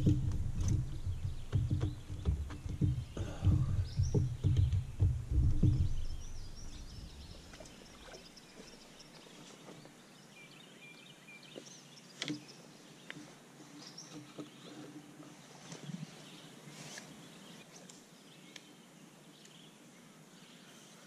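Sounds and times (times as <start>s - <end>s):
thumps on boat deck: 0.0s - 7.6s
songbirds chirping: 0.0s - 21.0s.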